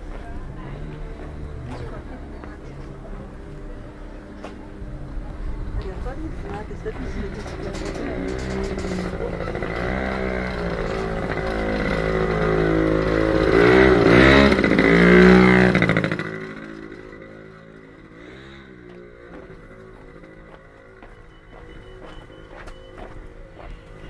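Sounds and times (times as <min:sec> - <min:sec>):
quiet street background: 0:00.0 - 0:24.0
vehicle engine revving by: 0:06.8 - 0:17.2, 0:18.0 - 0:20.6.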